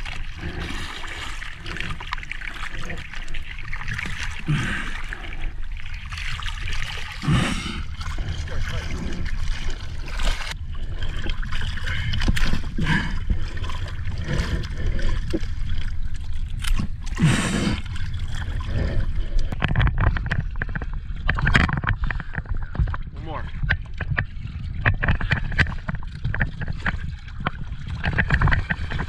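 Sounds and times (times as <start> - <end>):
water splashing against boat hull: 0.0 - 29.0
steady low rumble: 4.5 - 21.4.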